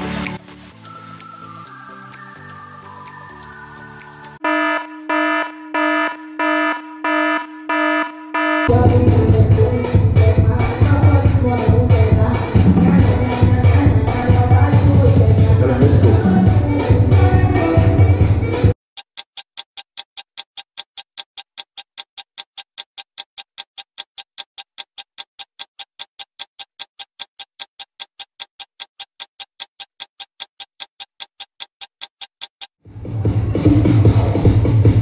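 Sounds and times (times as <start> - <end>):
music: 0.0 - 4.4, 8.7 - 18.8, 32.9 - 35.0
clock-like ticking: 18.9 - 32.8.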